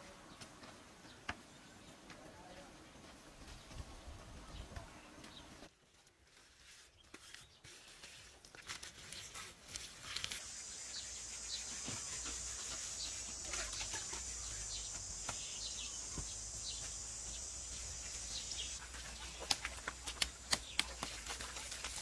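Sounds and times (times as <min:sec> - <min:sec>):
hand work on mud and bamboo: 0:05.7 - 0:22.0
insects buzzing: 0:10.4 - 0:20.1
birds chirping: 0:10.4 - 0:21.7.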